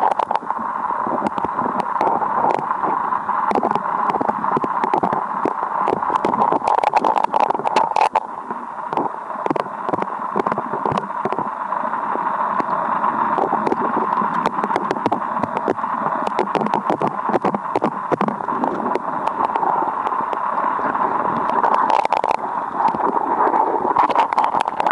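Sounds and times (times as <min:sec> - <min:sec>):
small clicks and knocks: 0:00.0 - 0:00.6, 0:01.2 - 0:08.3, 0:08.9 - 0:11.5, 0:12.6 - 0:20.5, 0:21.4 - 0:23.2, 0:23.9 - 0:24.9
underwater river rushing: 0:00.0 - 0:24.9.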